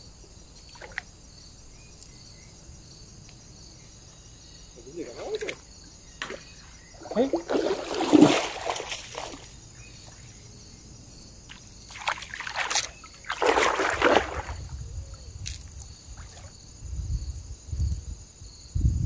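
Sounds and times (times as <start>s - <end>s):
river water splashing: 0.6s - 1.1s, 5.0s - 10.4s, 11.5s - 14.7s, 15.4s - 16.6s.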